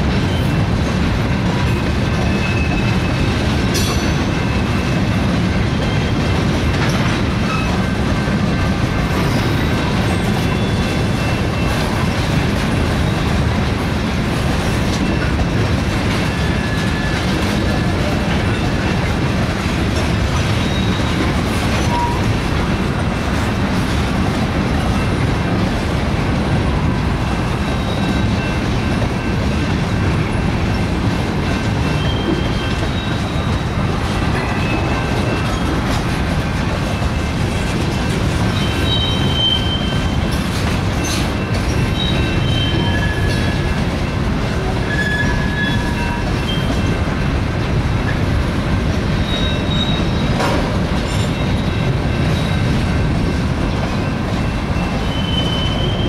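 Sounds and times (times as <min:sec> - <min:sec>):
train wheels rumbling on rail: 0:00.0 - 0:56.0
high-pitched wheel squeals: 0:38.5 - 0:40.4, 0:41.0 - 0:43.8, 0:44.8 - 0:46.9, 0:49.2 - 0:52.7, 0:54.0 - 0:56.0.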